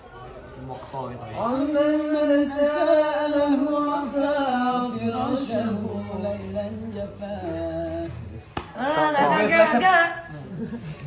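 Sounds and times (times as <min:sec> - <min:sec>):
men singing unaccompanied: 0:01.4 - 0:09.8.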